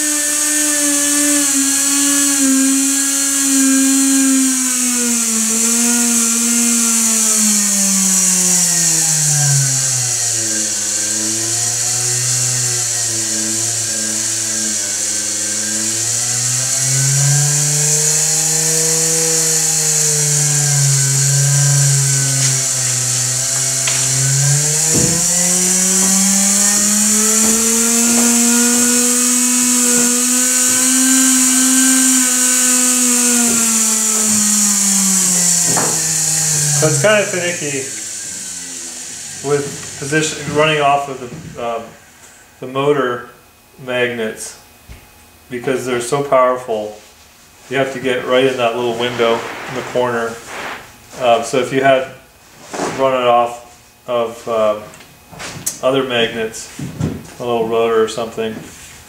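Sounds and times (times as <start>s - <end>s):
small motor whining: 0.0s - 42.6s, 47.8s - 51.4s.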